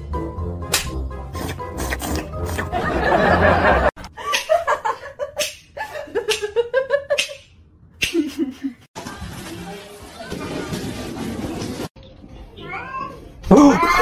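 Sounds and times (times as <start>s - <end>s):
person laughing: 8.0s - 8.9s.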